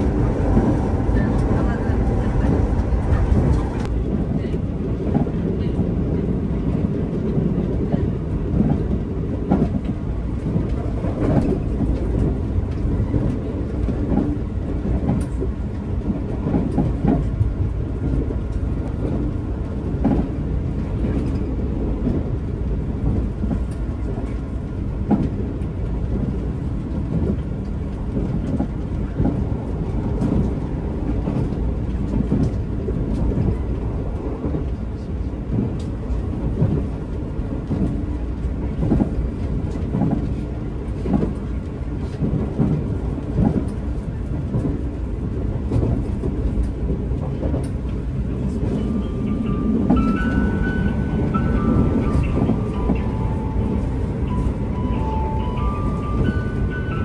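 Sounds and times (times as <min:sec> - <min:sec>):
train wheels rumbling on rail: 0:00.0 - 0:57.0
track clicks and knocks: 0:45.6 - 0:57.0.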